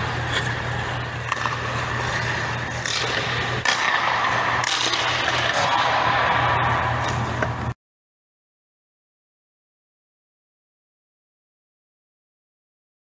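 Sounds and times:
ice skate blades scraping ice: 0.0s - 7.3s
steady low hum: 0.0s - 7.8s.

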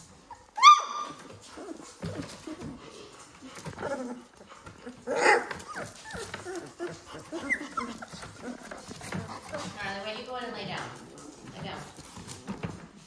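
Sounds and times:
puppies whimpering and yipping: 0.0s - 10.0s.

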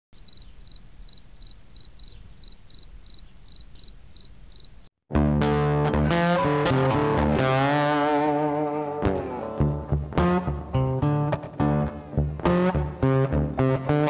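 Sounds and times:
cricket chirping: 0.2s - 4.9s
loud guitar-led music: 5.1s - 14.0s.

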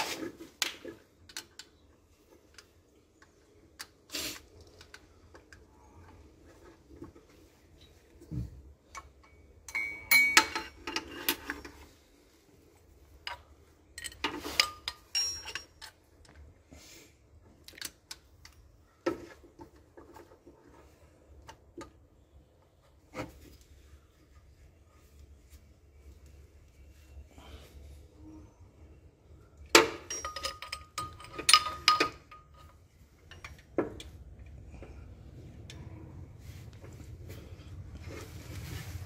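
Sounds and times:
metal hand tools clinking: 9.2s - 11.8s, 14.0s - 16.0s, 29.9s - 33.6s.

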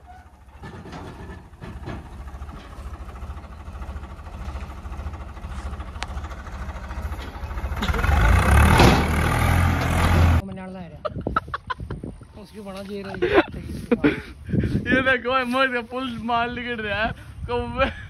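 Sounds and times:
tractor diesel engine revving: 0.0s - 10.4s.

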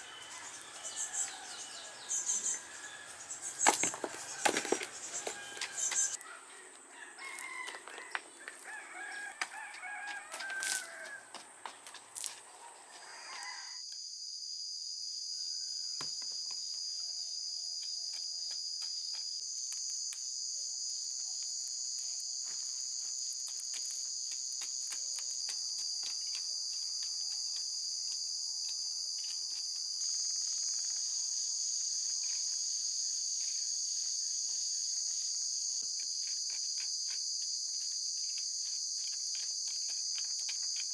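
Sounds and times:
rooster crowing: 0.0s - 3.2s, 4.2s - 11.3s, 12.6s - 13.8s
crickets chirping: 0.0s - 40.9s.

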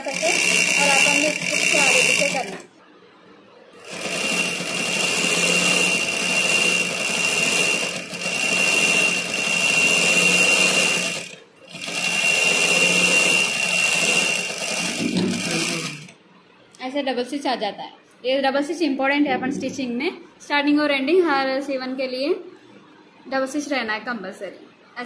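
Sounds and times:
sewing machine motor whine: 0.0s - 2.7s, 3.7s - 16.2s.

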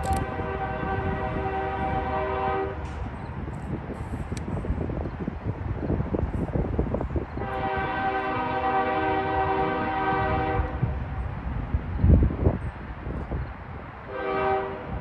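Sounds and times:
locomotive air horn: 0.0s - 2.9s, 7.4s - 11.0s, 14.1s - 15.0s
freight train rumble: 0.0s - 15.0s.

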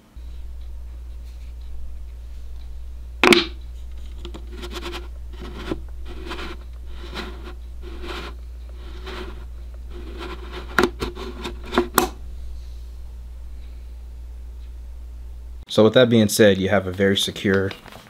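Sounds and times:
plastic scraping on wood: 3.2s - 12.2s.

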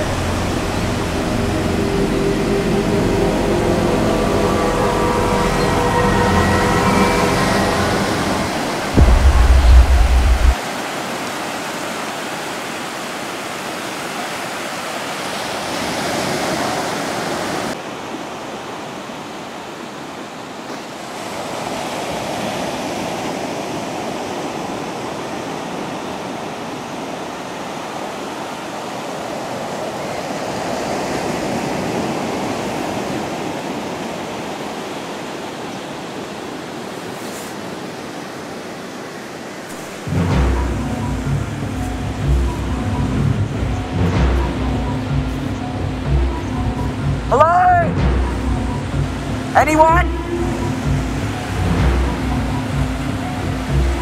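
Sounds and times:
small waves washing on beach: 0.0s - 42.7s.

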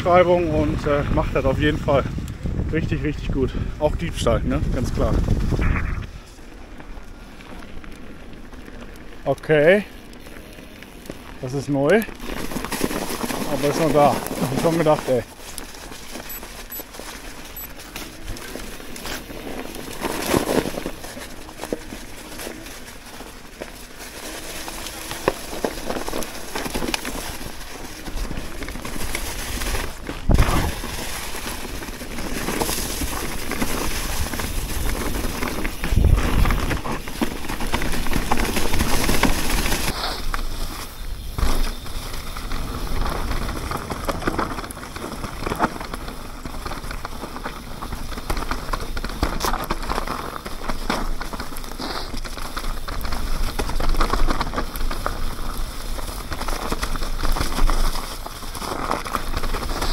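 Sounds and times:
steady rushing noise: 0.0s - 11.9s
bike knocking and rattling: 0.0s - 59.9s
tyres crackling through dry leaves: 4.0s - 59.9s.

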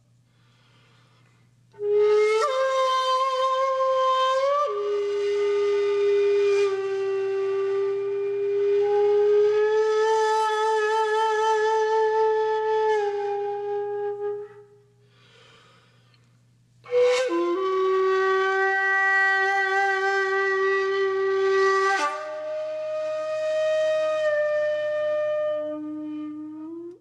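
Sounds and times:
slow wind instrument music: 1.5s - 27.0s.

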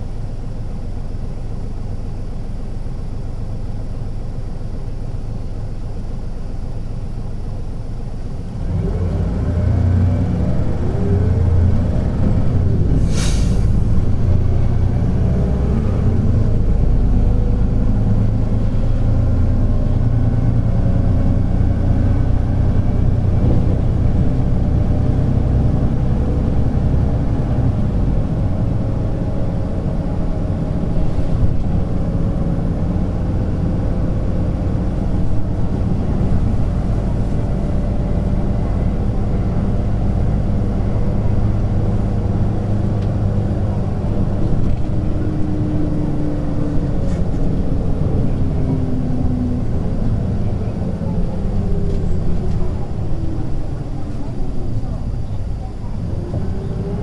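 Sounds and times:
bus diesel engine: 0.0s - 57.0s
brief air hiss: 13.0s - 13.8s.

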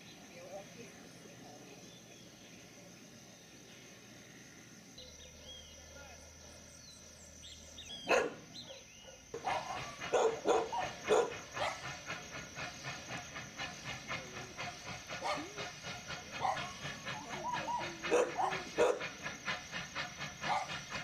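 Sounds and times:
steam locomotive chuffing: 0.0s - 21.0s
dogs barking: 8.0s - 12.0s, 15.2s - 15.6s, 16.4s - 19.1s, 20.4s - 20.8s.

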